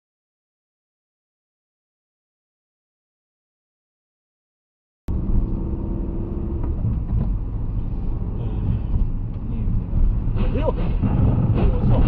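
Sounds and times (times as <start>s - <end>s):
car engine and tyres rumbling: 5.1s - 12.0s.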